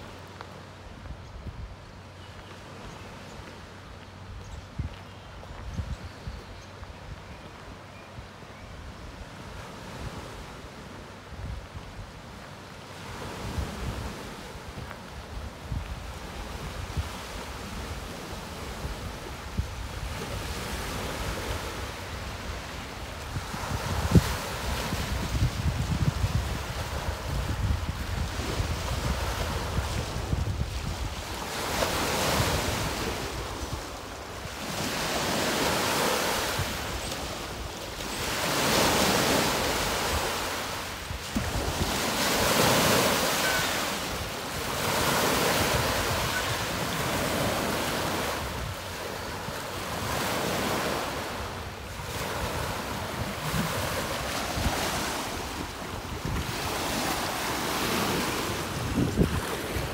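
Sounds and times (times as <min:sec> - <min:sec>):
wind buffeting microphone: 0:04.3 - 0:07.3, 0:13.0 - 0:59.9
lake waves breaking on beach: 0:12.3 - 0:59.9.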